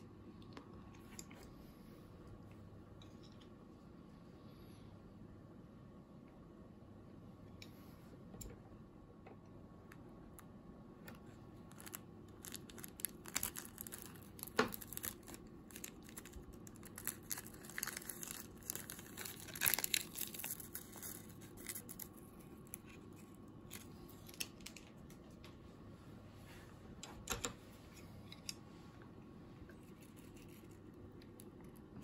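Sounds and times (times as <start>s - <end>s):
foil packet crinkling: 11.6s - 25.0s
packet tearing: 11.7s - 22.8s.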